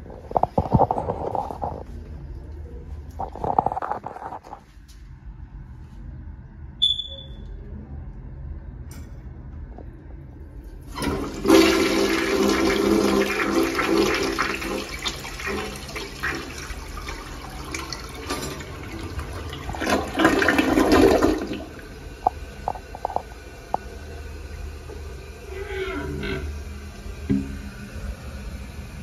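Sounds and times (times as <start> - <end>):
toilet flushing: 10.9 - 29.0.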